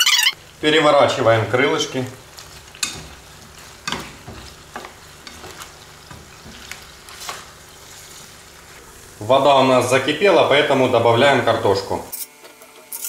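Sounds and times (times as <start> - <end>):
chicken wings sizzling in a pan: 0.4 - 12.0
spatula scraping and knocking pan: 2.7 - 7.5.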